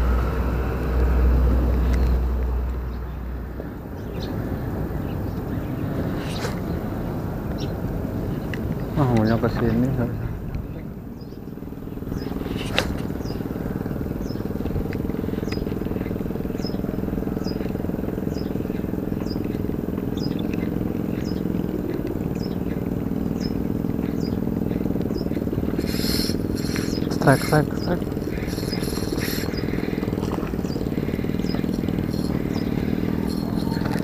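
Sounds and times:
low engine-like drone: 0:00.0 - 0:34.0
high falling chirp: 0:11.3 - 0:34.0.

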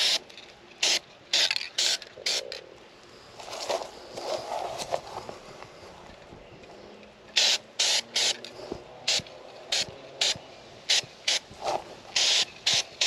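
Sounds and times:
spray paint can spraying: 0:00.0 - 0:00.2, 0:00.8 - 0:02.4, 0:07.3 - 0:08.4, 0:09.1 - 0:13.0.

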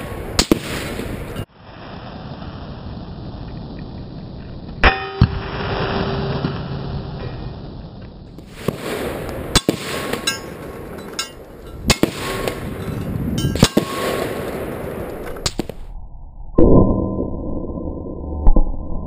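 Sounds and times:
rifle shots cracking: 0:00.0 - 0:01.4, 0:08.4 - 0:15.8
steel plate ringing: 0:04.8 - 0:06.8, 0:09.6 - 0:14.2.

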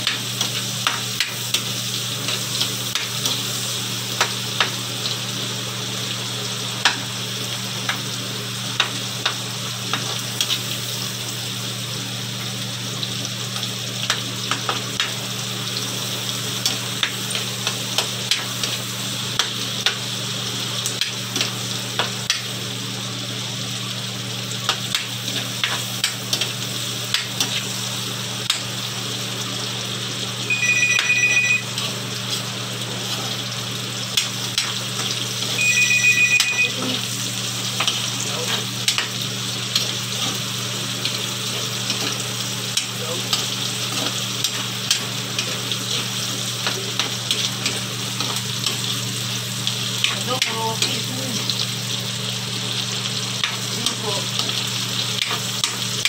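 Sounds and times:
food sizzling in a wok: 0:00.0 - 0:56.0
phone ringing: 0:30.5 - 0:31.8, 0:35.6 - 0:37.0.

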